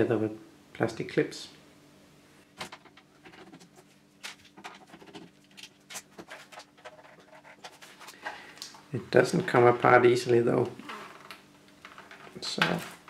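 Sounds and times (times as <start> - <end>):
hands working at plastic case: 2.6 - 8.3.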